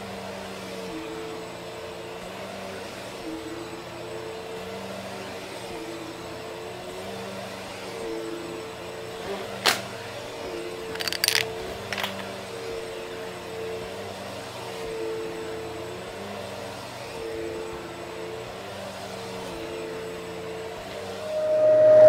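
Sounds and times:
vacuum cleaner running: 0.0 - 22.0
coins clinking in vacuum: 10.9 - 12.2.

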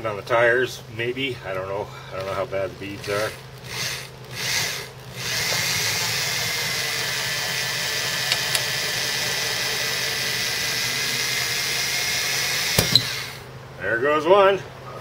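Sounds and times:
electric drill whining: 2.1 - 13.5.

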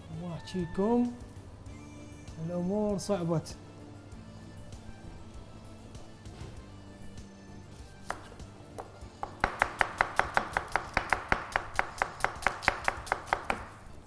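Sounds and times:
faint background music: 0.0 - 14.0
knife chopping on cutting board: 8.0 - 13.8.

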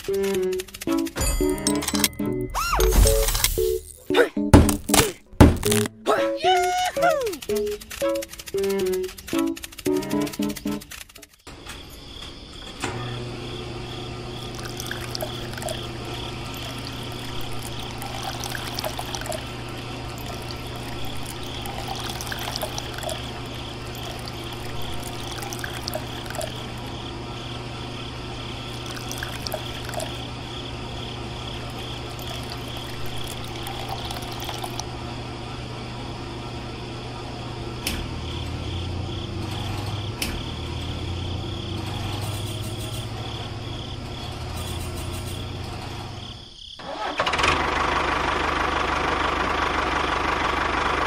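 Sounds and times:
small motor humming: 13.0 - 36.6
water pouring and trickling: 14.4 - 26.9, 28.7 - 30.2, 31.6 - 34.9.

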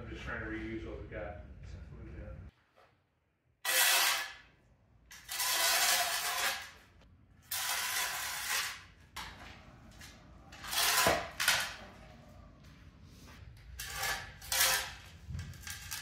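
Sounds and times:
shovel scraping concrete floor: 3.6 - 12.0, 13.1 - 16.0.

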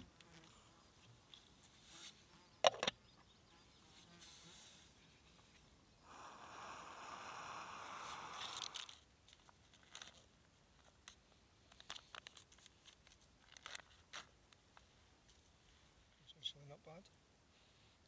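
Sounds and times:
plastic pouch tearing open: 8.3 - 9.0, 11.9 - 14.3
pouch clicking and crinkling: 8.4 - 14.4.

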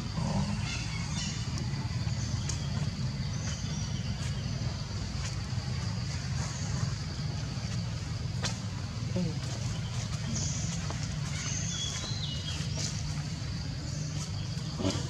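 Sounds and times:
low engine rumble: 0.0 - 15.0
faint high chirps and ticks: 0.1 - 8.5.

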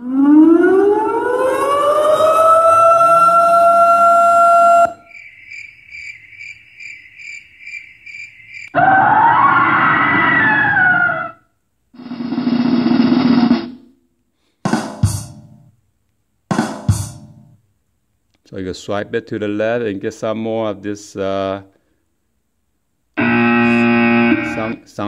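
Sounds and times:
siren tone: 0.0 - 5.1, 8.7 - 11.4, 23.2 - 24.8
cricket chirps: 4.5 - 8.8
lower noisy effect: 12.0 - 13.8
drum hits: 14.7 - 15.6, 16.5 - 17.5
noisy effect sweeping in pitch: 23.2 - 24.8.

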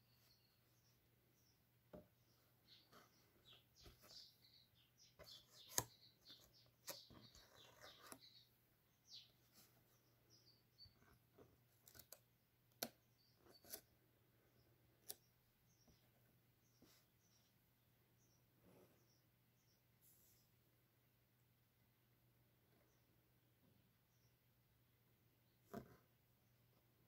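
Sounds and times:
paper clicks: 5.2 - 8.2, 11.8 - 13.0.

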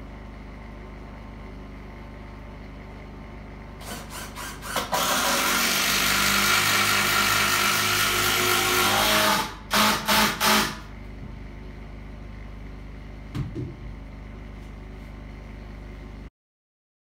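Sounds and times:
cordless drill driving a screw: 3.8 - 10.8.

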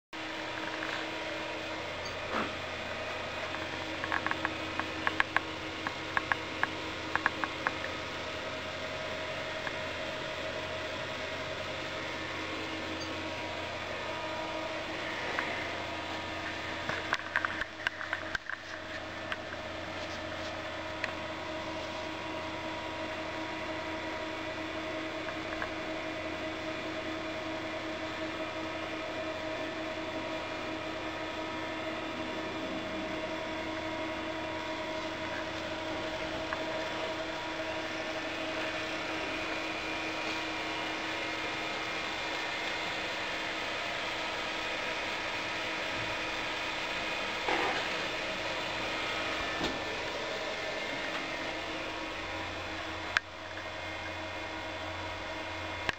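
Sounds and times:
computer fans humming: 0.2 - 55.9.

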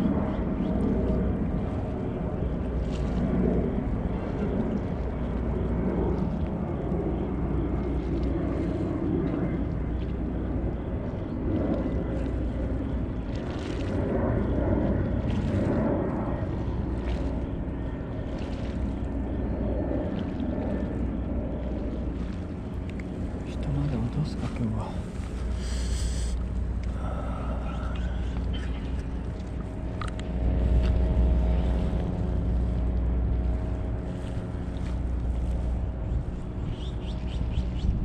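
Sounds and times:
low waterfront rumble: 0.0 - 38.0
deep hum: 9.6 - 38.0
faint light ticks: 22.8 - 23.1.

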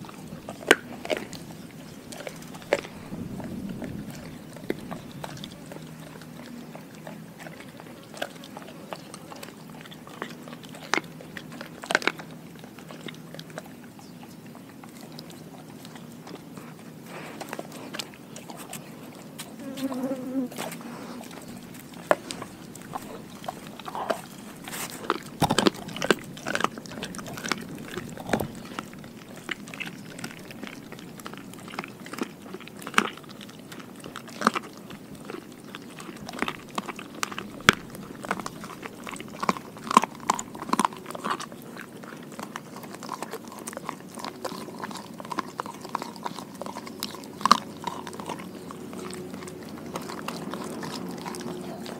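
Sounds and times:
dog chewing and crunching: 0.0 - 51.9.

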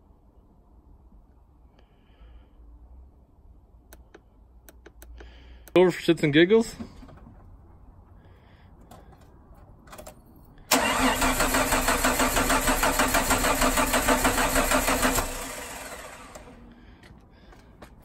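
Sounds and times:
engine starter cranking: 10.7 - 16.7.

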